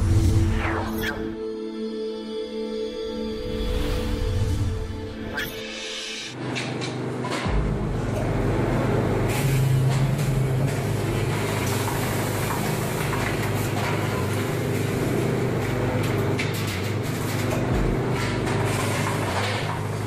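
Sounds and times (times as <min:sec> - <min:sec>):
factory machinery humming: 0:00.0 - 0:20.0.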